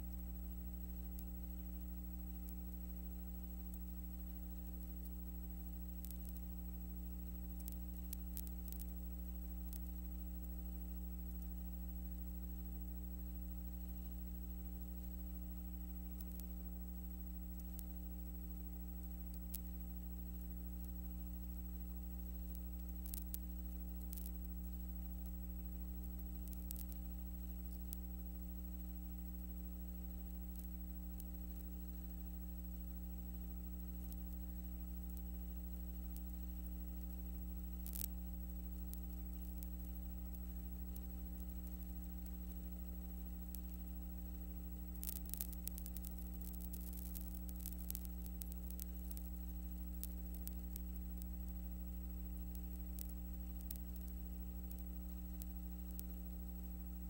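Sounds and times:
faint clicks and ticks: 0.0 - 57.0
low electrical hum: 0.0 - 57.0.

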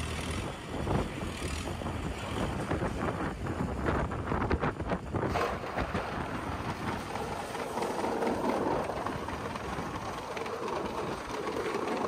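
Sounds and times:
feed auger running: 5.3 - 12.0.

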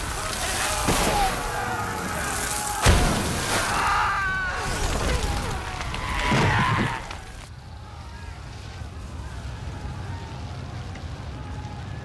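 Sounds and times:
men screaming: 0.0 - 8.4
fire blazing: 0.0 - 12.0.

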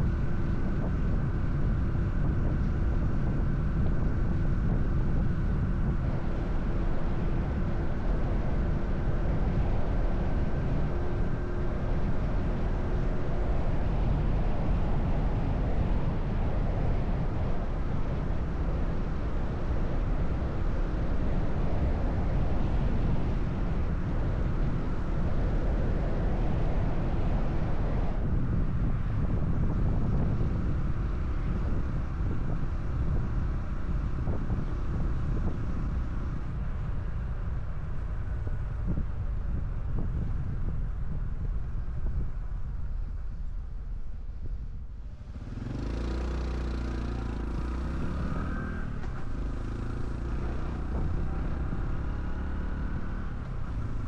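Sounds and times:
wind and road noise: 0.0 - 54.0
motorcycle engine cruising: 45.0 - 54.0.

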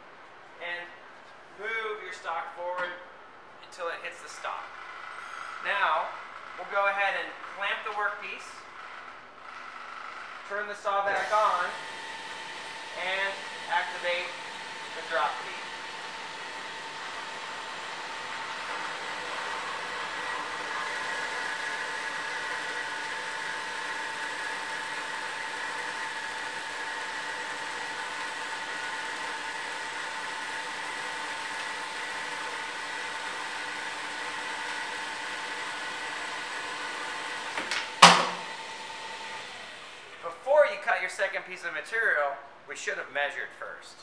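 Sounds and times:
band saw cutting metal: 11.1 - 40.2.

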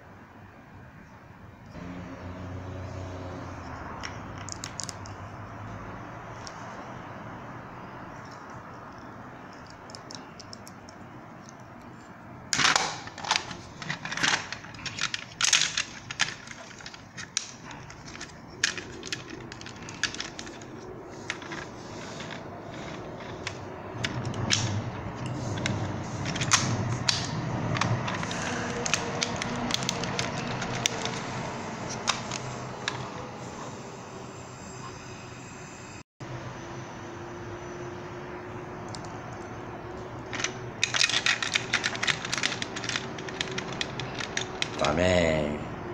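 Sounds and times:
hard plastic clicking and rattling: 12.6 - 24.8, 25.4 - 31.3, 31.9 - 33.1, 40.3 - 45.0.

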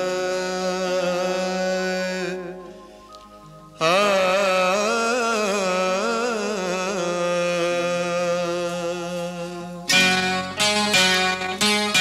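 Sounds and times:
plucked strings: 9.9 - 12.0.

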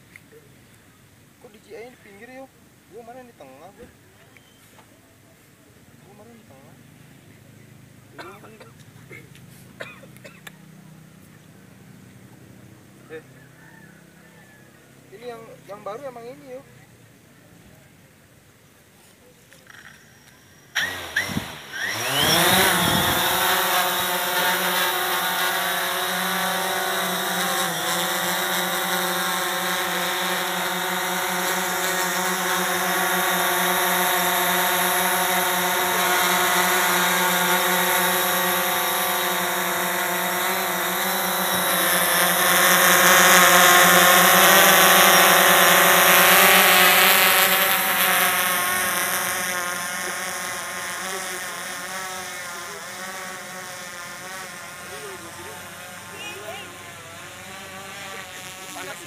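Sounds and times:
drone propellers buzzing: 19.6 - 59.0.

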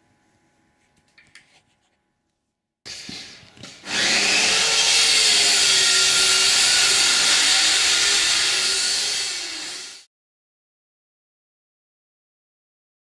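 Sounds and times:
power tool whining: 3.8 - 10.1.

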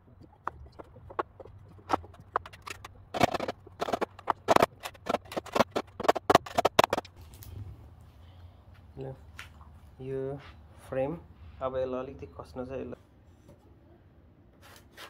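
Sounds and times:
knocking on wooden boards: 0.1 - 7.2.

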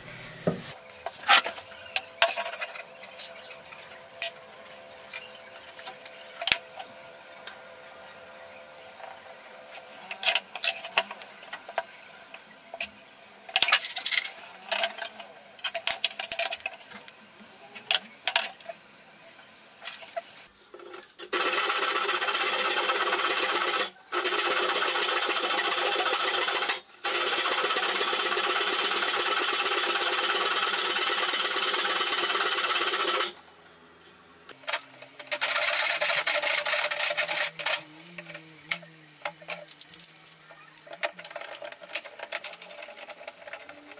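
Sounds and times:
hand saw cutting wood: 34.8 - 39.7.

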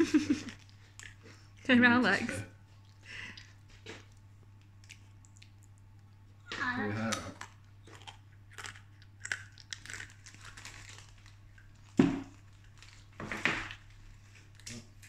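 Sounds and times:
packaging rustling and crinkling: 9.8 - 14.9.

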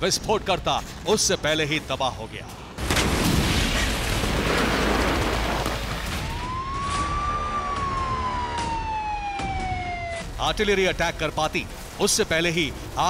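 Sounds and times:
fire engine siren wailing: 6.0 - 10.6.

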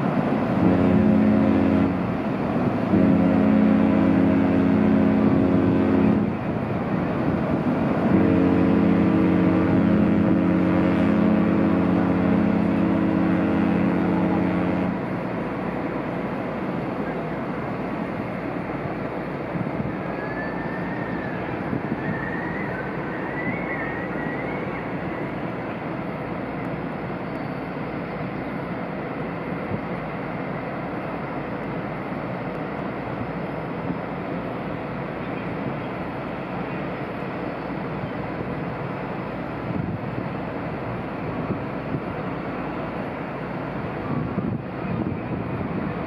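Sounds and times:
ship machinery rumble and hiss: 0.0 - 46.0
faint wavering whistle: 19.8 - 25.8.

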